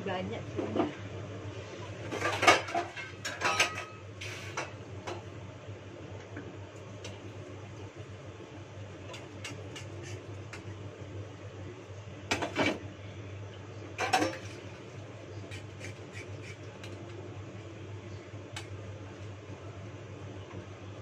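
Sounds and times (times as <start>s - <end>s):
dishes clinking: 2.1s - 4.0s, 14.0s - 14.6s
metal dishes clattering: 2.1s - 4.0s, 14.0s - 14.6s.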